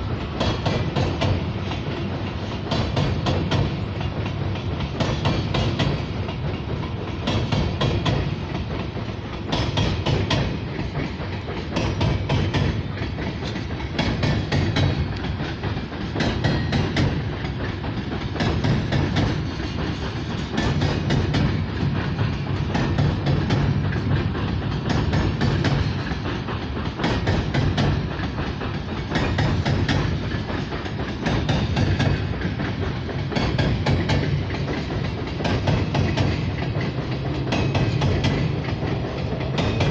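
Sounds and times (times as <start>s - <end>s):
train low rumble: 0.0s - 39.9s
train wheels clattering over joints: 0.0s - 39.9s.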